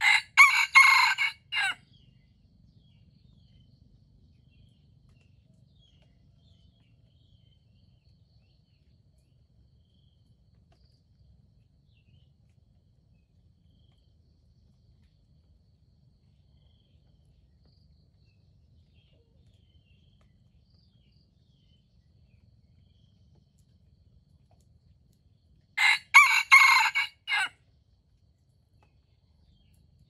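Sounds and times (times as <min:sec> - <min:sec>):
rooster crowing: 0:00.0 - 0:01.8, 0:25.8 - 0:27.6.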